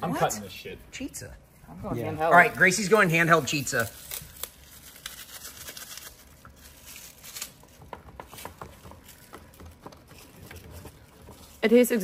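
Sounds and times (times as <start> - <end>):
packaging crackles: 3.6 - 7.8.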